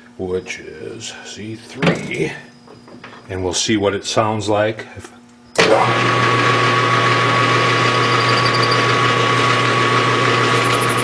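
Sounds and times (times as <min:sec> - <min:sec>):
metal lathe hum and whine: 0:05.6 - 0:11.0.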